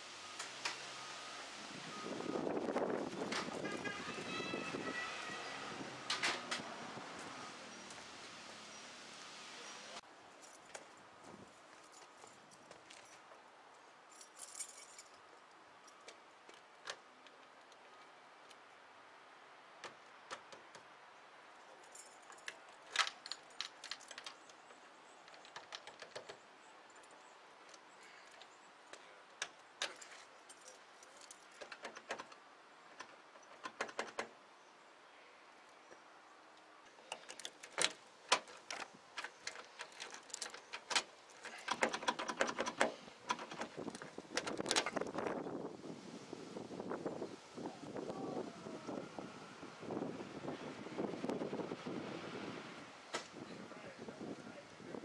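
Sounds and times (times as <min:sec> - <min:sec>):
keys jangling at a door lock: 0:14.1 - 0:15.2, 0:21.8 - 0:27.2, 0:29.5 - 0:32.4, 0:36.9 - 0:45.1.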